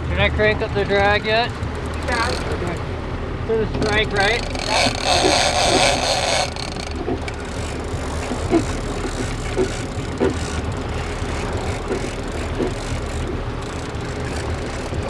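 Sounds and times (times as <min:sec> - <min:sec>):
boat engine running: 0:00.0 - 0:15.0
water noise: 0:00.0 - 0:15.0
wind: 0:00.0 - 0:15.0
fishing reel clicks: 0:04.2 - 0:15.0.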